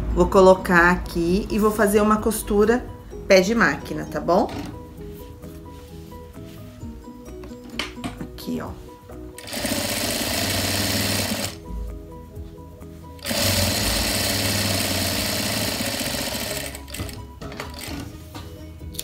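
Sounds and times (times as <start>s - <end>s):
industrial sewing machine stitching: 9.4s - 11.6s, 13.2s - 18.1s.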